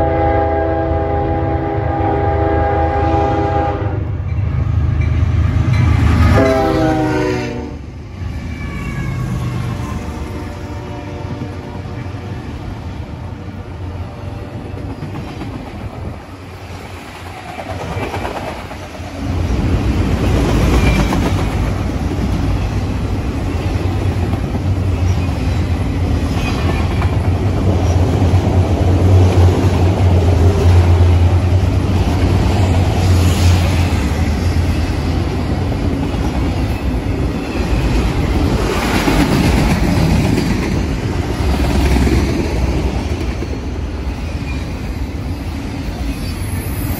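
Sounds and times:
freight train wheels rumbling: 0.0s - 46.9s.

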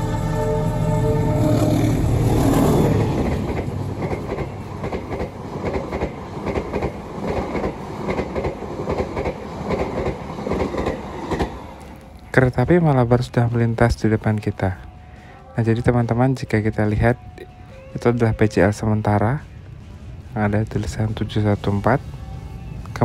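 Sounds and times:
train wheels clattering over rail joints: 2.5s - 12.0s.

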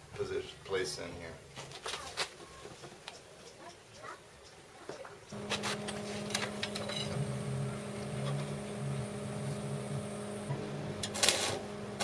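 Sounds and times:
welding machine humming: 5.3s - 12.0s.

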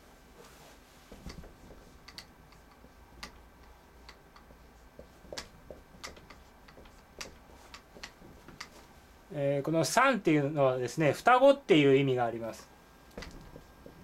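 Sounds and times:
marker tapping and scratching whiteboard: 1.1s - 8.8s, 13.1s - 14.0s.

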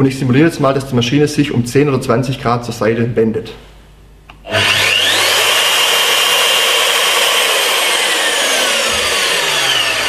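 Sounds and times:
drill motor whining: 4.4s - 10.0s.

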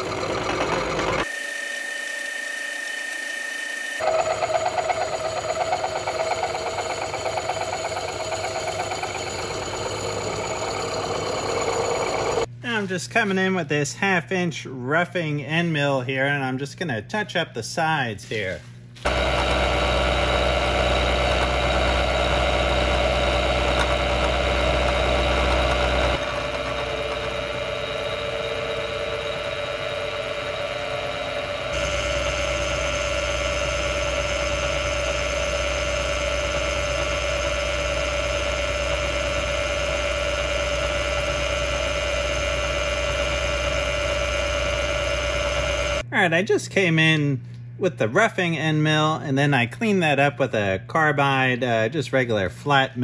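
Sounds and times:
high machine whine: 0.0s - 12.5s, 19.0s - 46.1s
milling machine cutting steel: 0.0s - 12.5s, 19.1s - 46.0s.

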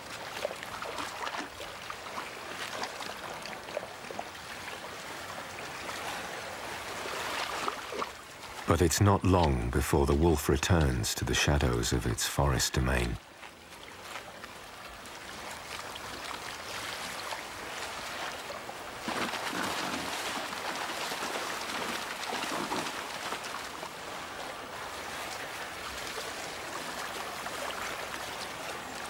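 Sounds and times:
river running over stones: 12.4s - 29.0s.

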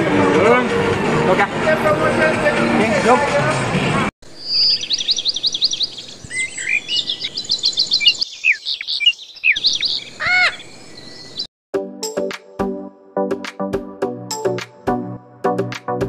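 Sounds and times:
birds chirping and whistling: 4.3s - 11.5s.

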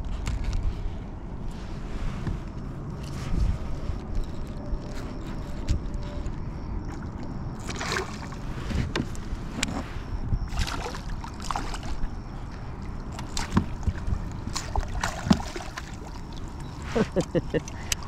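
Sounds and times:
steady low rumble: 0.0s - 18.0s
water splashing: 6.9s - 8.5s, 10.5s - 18.0s
knocks and scrapes on kayak: 8.4s - 10.2s, 13.1s - 15.6s.

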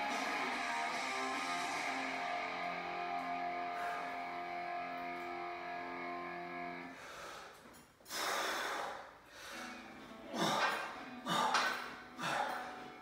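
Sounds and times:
guitar music: 0.0s - 6.9s
person breathing hard: 3.6s - 4.4s, 6.9s - 12.9s.

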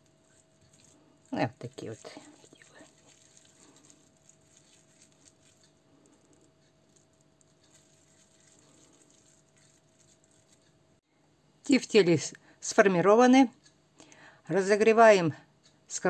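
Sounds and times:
hands squishing minced meat: 0.0s - 10.7s
faint steady hum: 0.0s - 16.0s.

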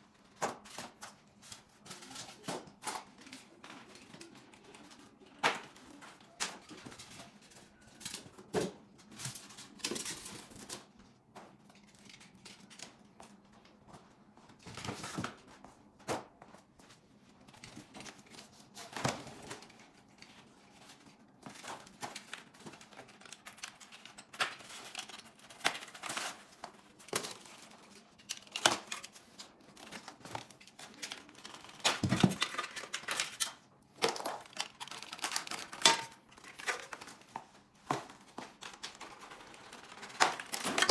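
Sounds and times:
packing wrap crinkling and tearing: 17.6s - 37.4s, 38.0s - 40.9s.

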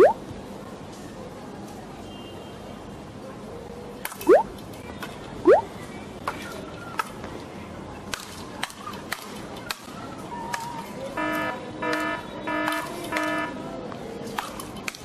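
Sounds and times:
buzzer-like beeps: 11.2s - 13.6s.

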